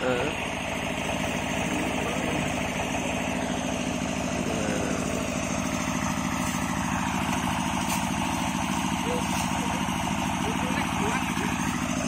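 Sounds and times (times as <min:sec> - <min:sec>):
engine idling with chugging: 0:00.0 - 0:12.0.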